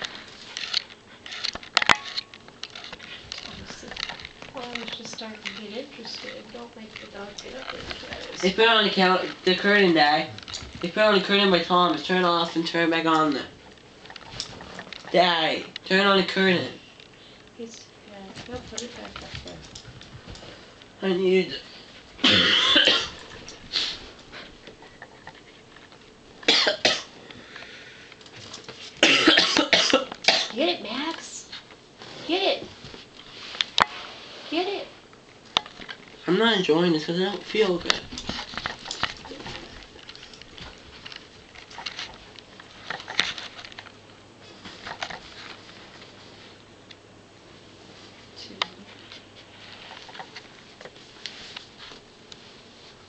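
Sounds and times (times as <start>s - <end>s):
puppy paws pattering on carpet: 2.5s - 15.8s, 18.0s - 21.2s, 30.9s - 34.5s, 35.1s - 46.7s, 47.5s - 53.0s
person coughing: 22.2s - 23.2s, 26.5s - 27.1s, 29.0s - 30.6s.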